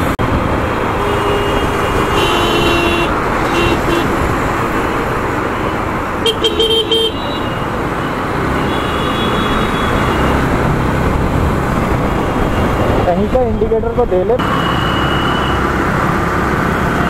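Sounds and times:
motorcycle engine: 0.0 - 13.1
higher vehicle horn: 1.0 - 4.2, 6.2 - 7.7, 8.6 - 10.4, 14.4 - 15.7
vehicle horn honking: 1.0 - 4.2, 6.2 - 7.7, 8.6 - 10.4, 14.4 - 15.6
wind noise: 9.5 - 14.5.

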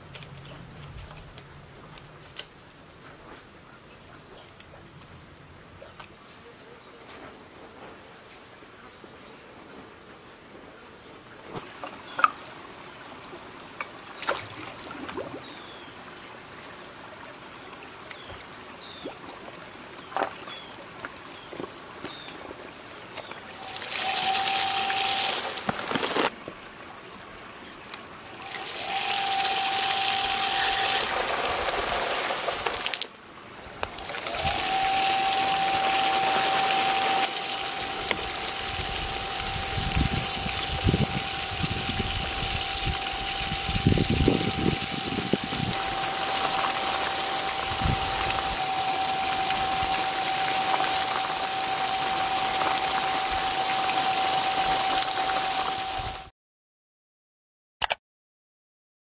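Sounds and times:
stream trickling: 11.5 - 56.3
water pump motor whine: 23.2 - 26.3, 28.3 - 32.9, 33.8 - 56.3
water jet hissing: 23.5 - 26.3, 28.3 - 33.1, 33.9 - 56.3.

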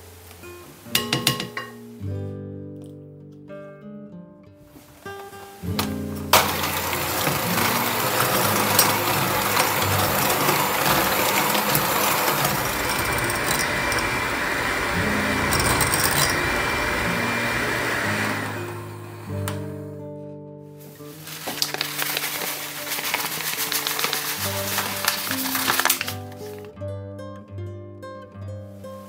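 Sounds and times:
guitar music: 0.0 - 29.0
electric hand mixer whirring: 6.4 - 19.6, 21.6 - 26.1.

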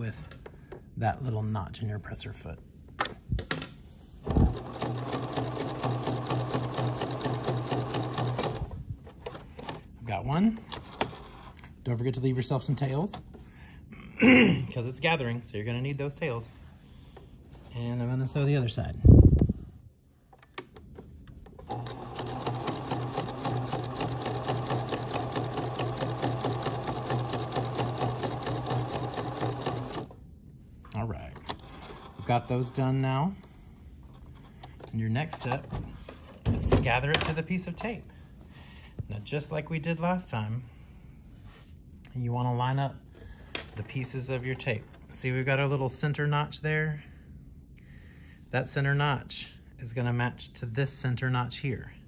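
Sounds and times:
sewing machine running: 4.3 - 8.7, 21.6 - 30.2, 31.5 - 32.4
sewing machine clicks: 4.3 - 9.8, 20.4 - 30.1.

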